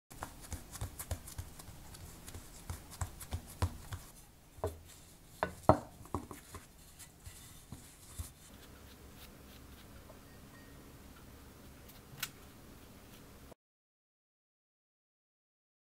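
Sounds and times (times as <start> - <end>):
dough patted by hand: 0.1 - 4.8, 5.4 - 6.7
rolling pin knocking: 5.4 - 6.6.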